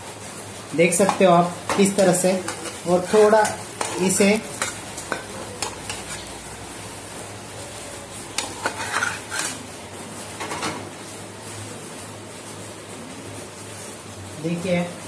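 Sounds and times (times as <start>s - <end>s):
utensils clinking on pots: 0.9s - 6.4s, 8.3s - 9.7s.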